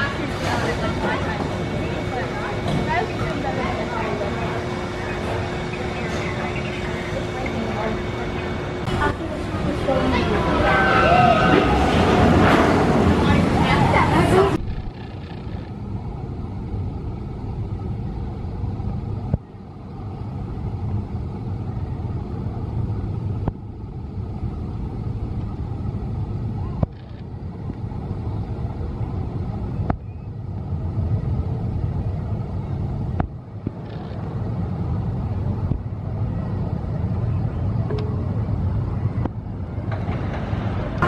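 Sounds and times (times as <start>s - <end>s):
coaster train rumbling on track: 0.0s - 41.0s.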